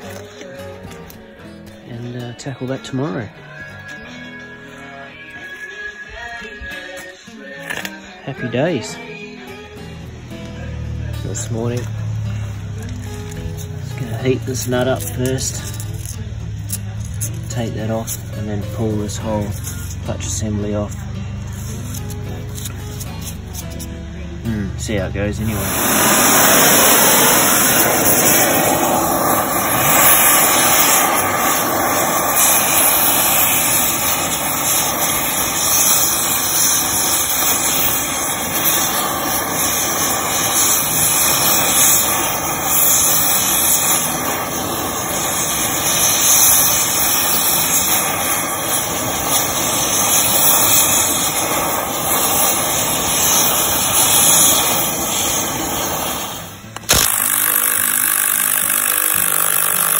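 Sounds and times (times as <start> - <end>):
gas torch flame hissing: 0.0 - 3.2, 9.6 - 59.9
sharp click: 56.7 - 59.9.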